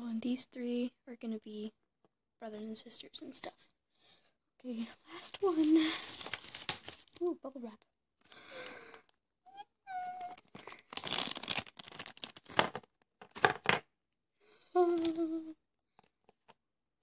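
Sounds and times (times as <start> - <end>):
bubble wrap crinkling and tearing: 5.1 - 7.3, 10.1 - 12.9
girl humming: 9.5 - 10.4, 14.7 - 15.6.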